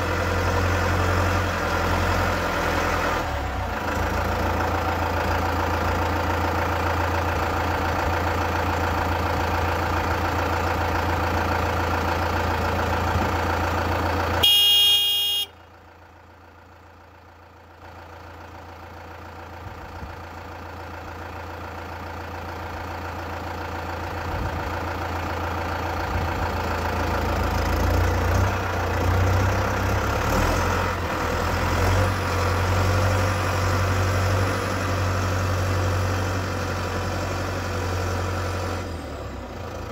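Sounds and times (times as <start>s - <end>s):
tractor diesel engine idling: 0.0s - 39.9s
short horn blast: 14.4s - 15.6s.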